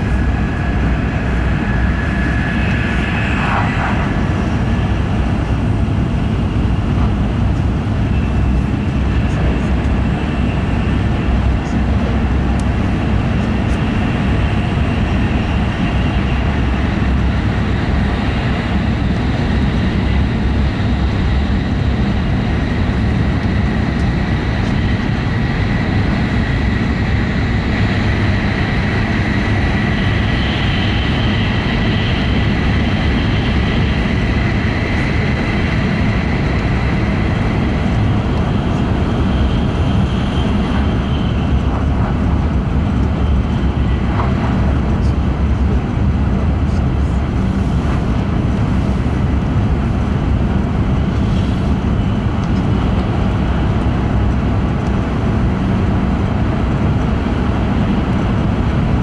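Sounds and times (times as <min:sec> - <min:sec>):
faint high whine: 0:00.0 - 0:42.2
train running gear rumble: 0:00.0 - 0:59.0.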